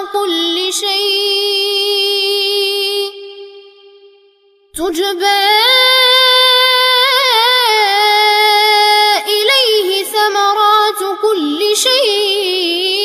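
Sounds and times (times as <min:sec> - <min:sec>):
boy chanting recitation: 0:00.0 - 0:03.6, 0:04.8 - 0:13.0.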